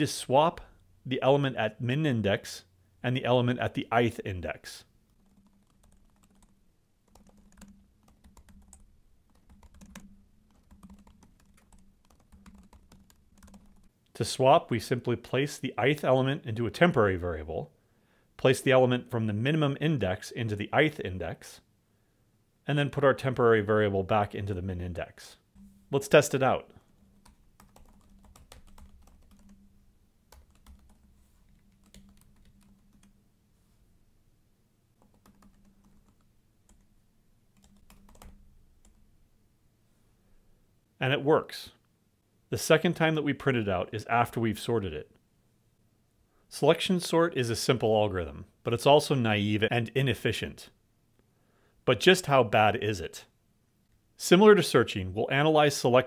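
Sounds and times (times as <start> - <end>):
typing on computer keyboard: 5.1 - 13.9, 26.9 - 29.6, 30.3 - 33.1, 35.0 - 36.9, 37.6 - 39.0.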